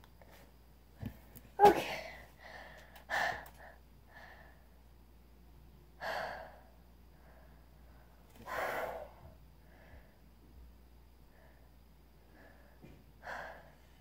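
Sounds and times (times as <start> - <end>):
boy breathing heavily: 1.7 - 4.7, 11.2 - 14.0.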